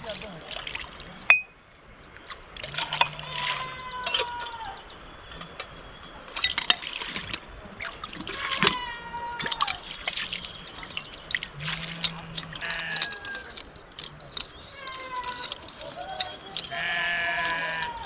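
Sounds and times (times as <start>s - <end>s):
water splashing: 0.0s - 1.5s, 2.1s - 18.0s
young animal bleating: 2.8s - 4.8s, 8.3s - 9.8s, 11.6s - 13.6s, 14.7s - 18.0s
scattered clicks: 9.6s - 18.0s.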